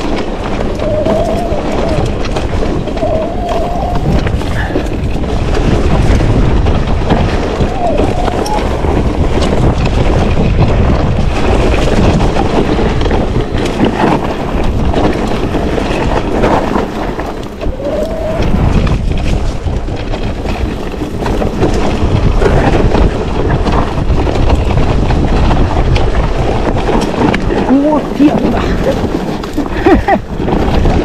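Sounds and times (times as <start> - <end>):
bike knocking and rattling: 0.0 - 31.0
tyres rolling over dirt trail: 0.0 - 31.0
wind buffeting microphone: 0.0 - 31.0.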